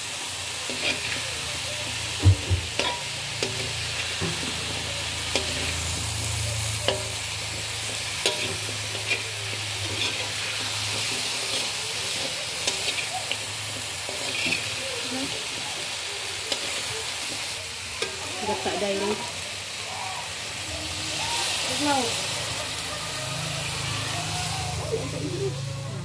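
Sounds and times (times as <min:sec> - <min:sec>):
vegetables sizzling in a wok: 0:00.0 - 0:26.0
ladle scraping a wok: 0:00.6 - 0:01.9, 0:02.7 - 0:19.7.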